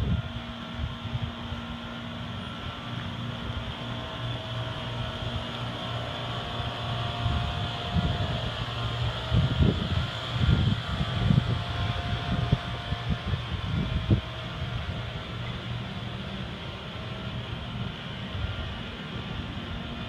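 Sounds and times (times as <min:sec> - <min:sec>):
wind gusting on microphone: 0:00.0 - 0:01.8, 0:06.6 - 0:15.8
low mechanical hum: 0:00.0 - 0:20.0.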